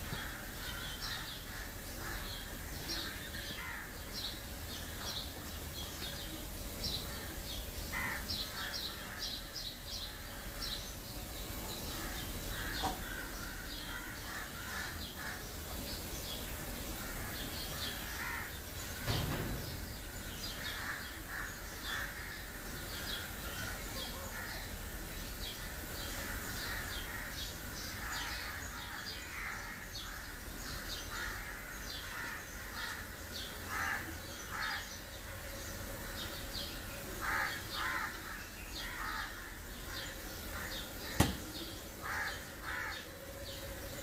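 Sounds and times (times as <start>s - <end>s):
small birds chirping: 0.0s - 44.0s
crows cawing: 0.1s - 4.0s, 7.9s - 9.3s, 11.9s - 15.5s, 17.0s - 18.7s, 20.6s - 24.7s, 25.7s - 35.0s, 37.2s - 41.4s, 42.0s - 43.3s.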